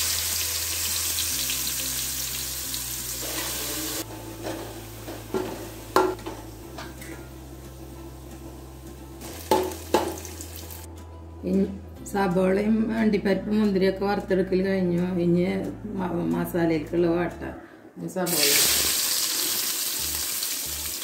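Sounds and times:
onions sizzling in hot oil: 0.0 - 4.0, 9.2 - 10.9, 18.3 - 21.0.

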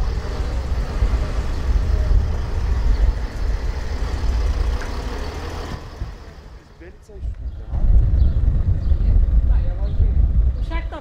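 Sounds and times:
car engine idling: 0.0 - 8.9.

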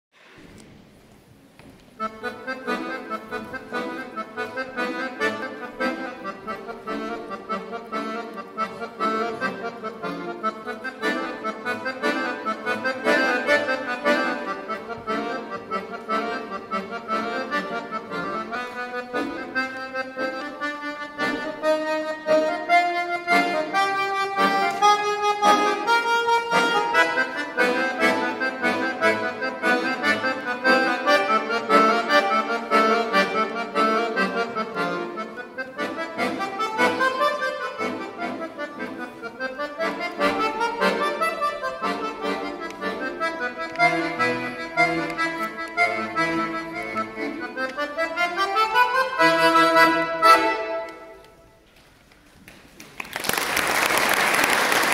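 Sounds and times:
piano accordion playing: 2.0 - 51.6.

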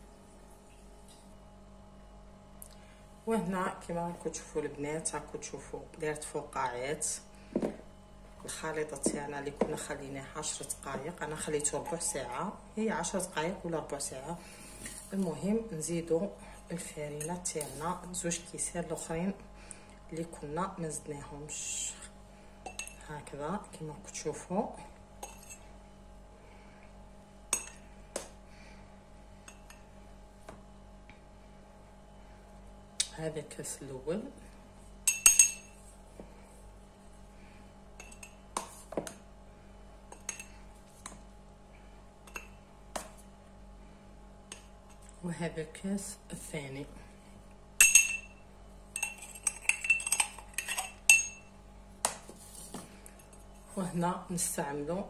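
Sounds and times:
metal spoon clinking on metal cup: 35.1 - 35.8, 47.8 - 48.4, 49.0 - 51.5.

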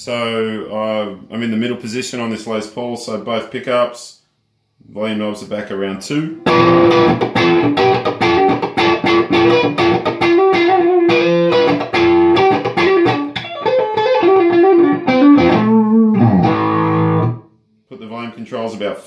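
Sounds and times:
electric guitar notes and chords: 6.4 - 17.5.

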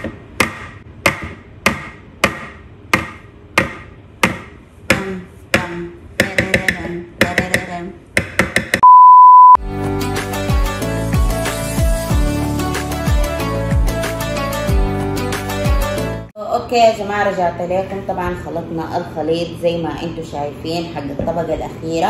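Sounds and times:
loud steady beep: 8.8 - 9.6
background music: 9.6 - 16.3.

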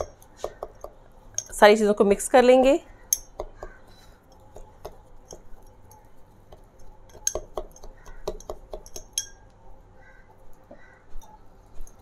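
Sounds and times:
spoon clinking in glass: 7.1 - 9.4.

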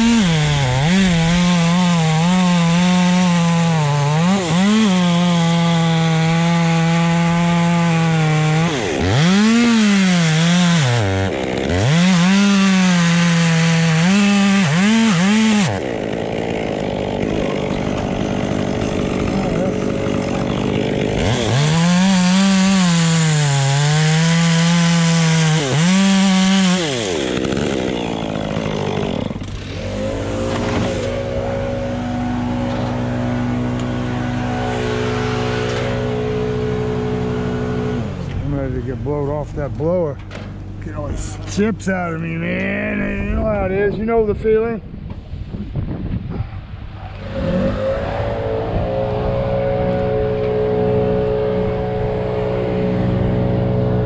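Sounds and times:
chainsaw cutting wood: 0.0 - 38.4, 47.1 - 54.0.

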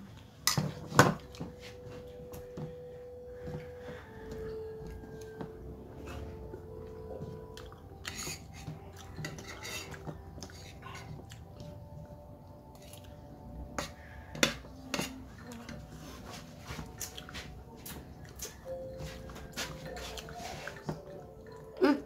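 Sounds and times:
utensils clinking on a plate: 0.4 - 1.6, 6.8 - 11.7, 13.8 - 17.4.

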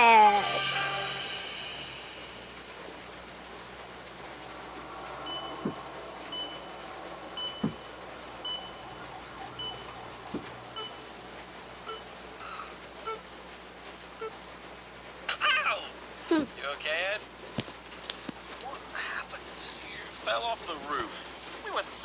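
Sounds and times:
heart monitor beeps: 5.2 - 6.7, 7.4 - 11.1, 11.9 - 12.1.

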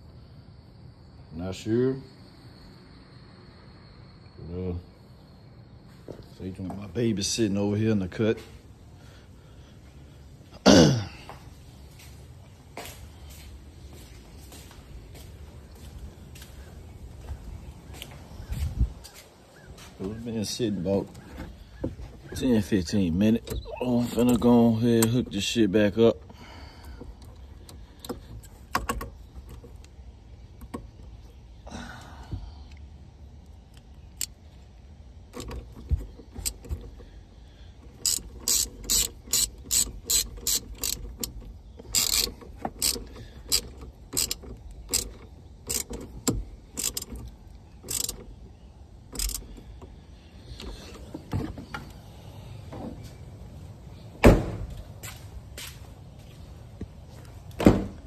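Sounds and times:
hand ratchet clicking: 37.9 - 48.2, 49.1 - 49.5
thump: 54.2 - 54.7, 57.6 - 58.0.

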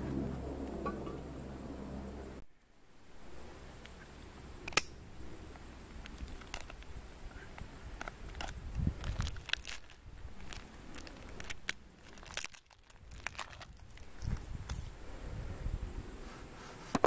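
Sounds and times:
low rumble: 0.0 - 2.4.

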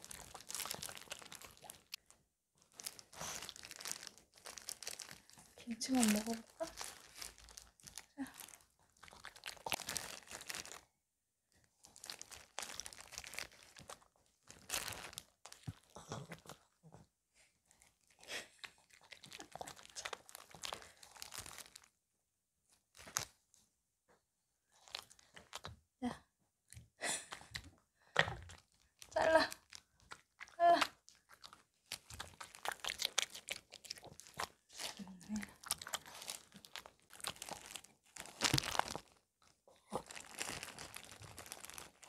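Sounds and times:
dog chewing crunchy food: 0.0 - 2.0, 29.9 - 39.1
plastic glove crinkling: 0.0 - 10.8, 11.8 - 15.9, 18.3 - 21.9, 22.9 - 23.4, 24.8 - 25.6, 28.5 - 42.0.

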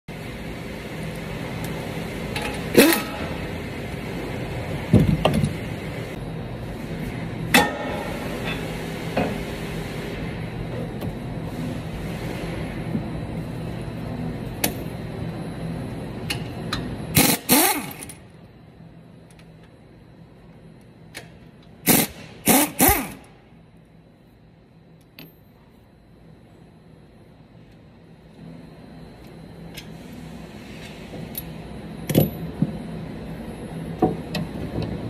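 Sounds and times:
low shop hum: 0.1 - 35.0
impact wrench bursts: 17.1 - 18.2, 21.8 - 23.3.

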